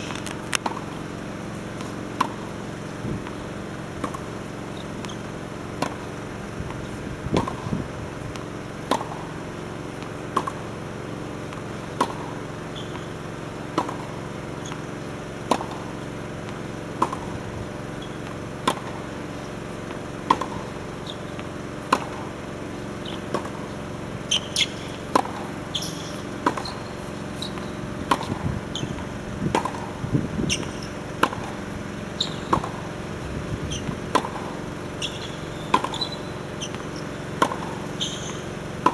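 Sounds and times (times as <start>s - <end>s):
rackets striking tennis balls: 0.0s - 38.9s
tennis balls bouncing: 0.0s - 38.9s.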